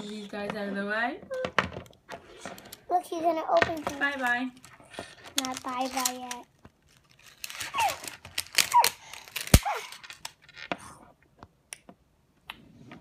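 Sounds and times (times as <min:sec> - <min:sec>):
plastic wrapping crinkling: 0:03.5 - 0:10.7.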